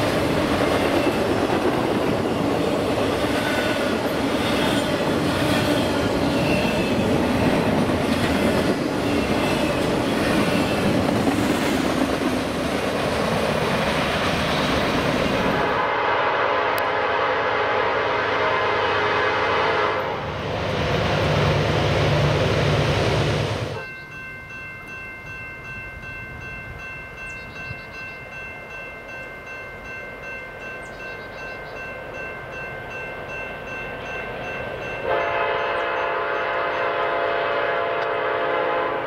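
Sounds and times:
train engine and rail noise: 0:00.0 - 0:39.0
train air horn blowing: 0:15.6 - 0:20.3, 0:35.0 - 0:39.0.

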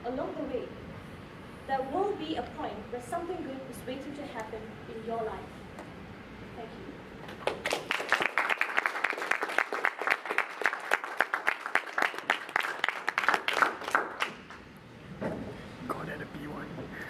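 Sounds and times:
audience applause: 0:07.3 - 0:14.6.

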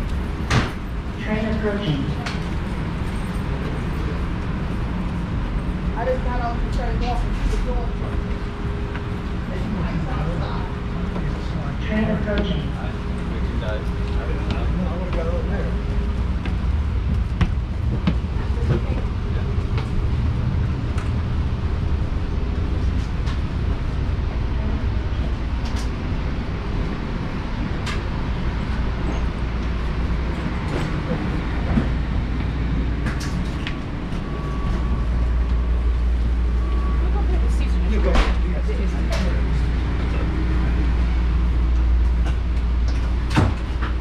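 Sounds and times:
footsteps of passengers: 0:00.0 - 0:44.0
low rumble of train equipment: 0:00.0 - 0:44.0.

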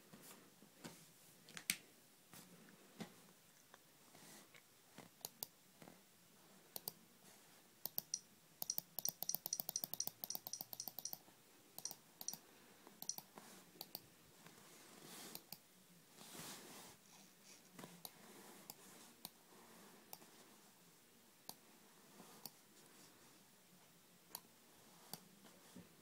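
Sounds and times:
soft rustle: 0:16.1 - 0:20.8.

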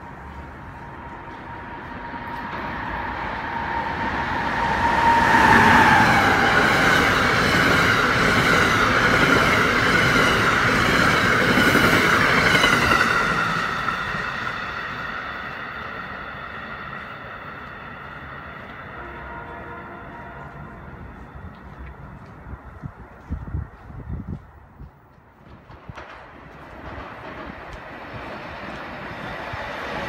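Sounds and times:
locomotive high whine: 0:00.0 - 0:23.7
train wheels rushing on rails: 0:00.0 - 0:30.0.

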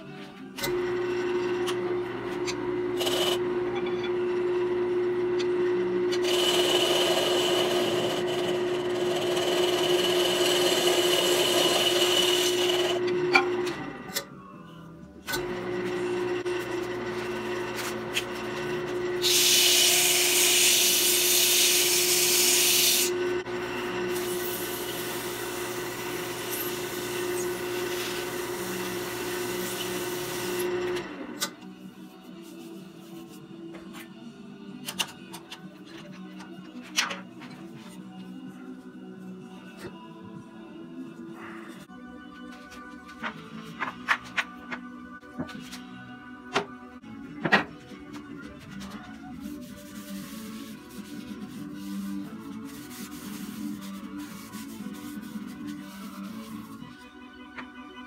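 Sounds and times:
wood lathe humming: 0:00.7 - 0:13.7
turning tool cutting hiss: 0:19.2 - 0:23.2.

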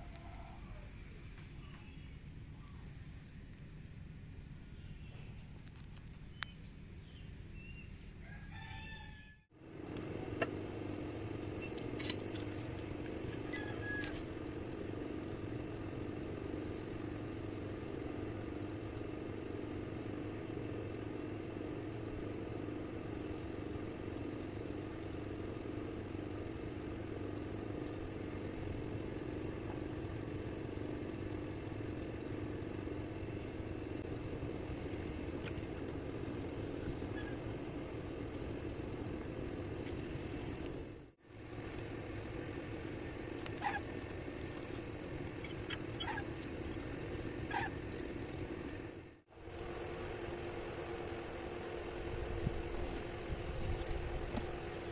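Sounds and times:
rooster crowing: 0:00.0 - 0:01.0, 0:08.2 - 0:09.5.

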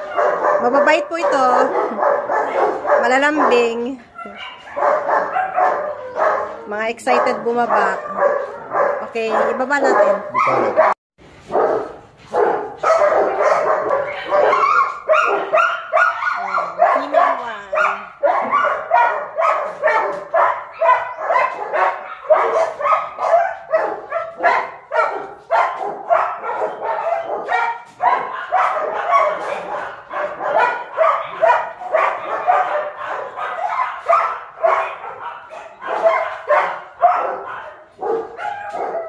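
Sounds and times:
dogs barking: 0:00.0 - 0:39.0.

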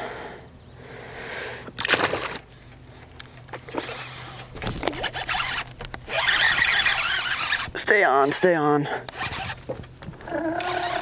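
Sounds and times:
fishing reel whirring: 0:03.7 - 0:08.5, 0:09.1 - 0:09.6, 0:10.4 - 0:11.0.

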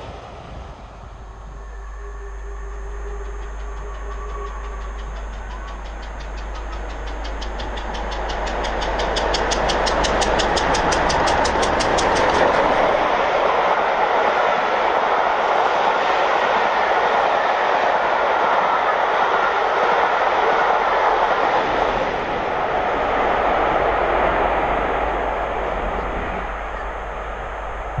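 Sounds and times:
train wheels rushing on rail: 0:00.0 - 0:28.0
diesel locomotive rumble: 0:00.6 - 0:13.9.

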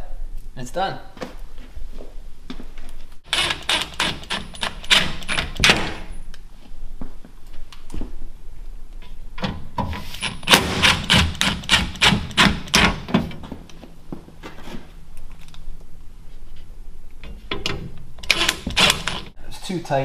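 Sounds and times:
drill driving screws into metal: 0:03.3 - 0:06.0, 0:10.2 - 0:13.0, 0:18.2 - 0:19.3.

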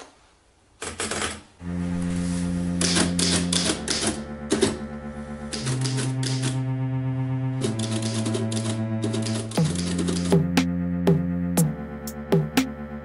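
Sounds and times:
typewriter paper winding rattle: 0:00.8 - 0:01.5, 0:07.6 - 0:10.3
music with low held notes: 0:01.6 - 0:13.0
typewriter keys clacking: 0:07.6 - 0:10.3.

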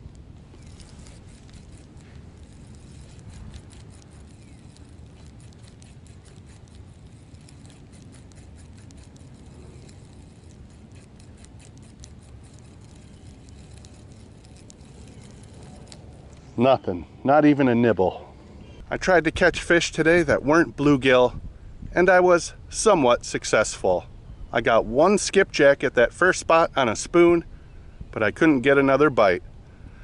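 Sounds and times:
fishing reel clicking: 0:00.6 - 0:16.1
wind rumble on microphone: 0:18.8 - 0:23.4, 0:24.0 - 0:26.2, 0:26.9 - 0:28.4.

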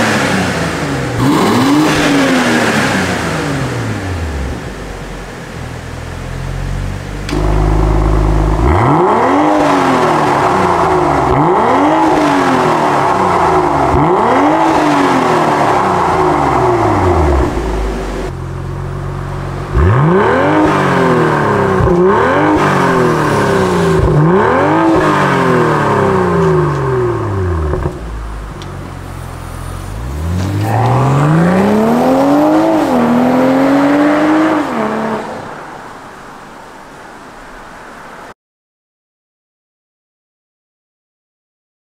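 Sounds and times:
car engine revving: 0:00.0 - 0:35.6.

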